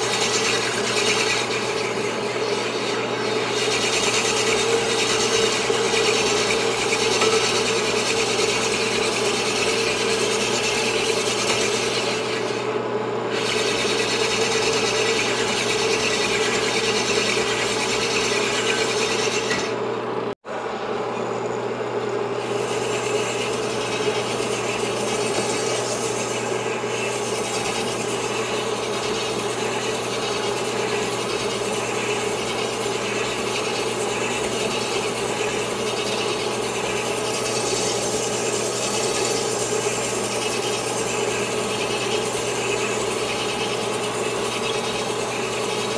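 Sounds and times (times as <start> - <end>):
honing stones rasping on metal: 0.0 - 12.6, 22.4 - 45.3
motor hum: 0.0 - 45.9.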